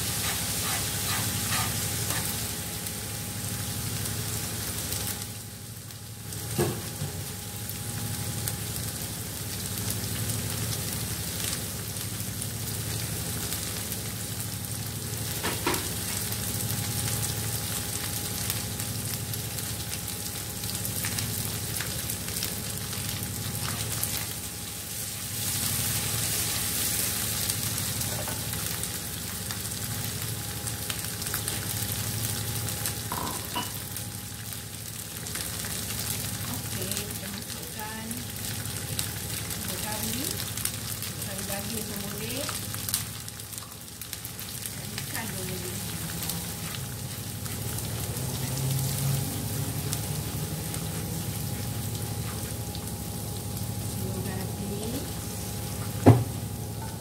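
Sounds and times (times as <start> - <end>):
stirring in a wok: 0.0 - 2.5
hot oil sizzling: 0.0 - 57.0.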